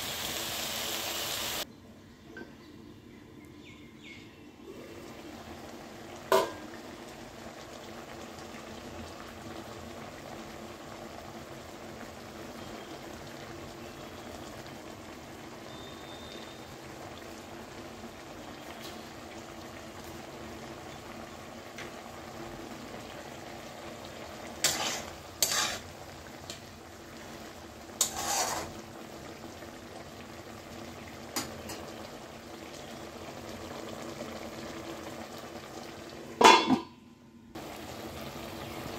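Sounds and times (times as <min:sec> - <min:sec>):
curry bubbling in a pan: 0:04.8 - 0:36.6, 0:37.5 - 0:38.9.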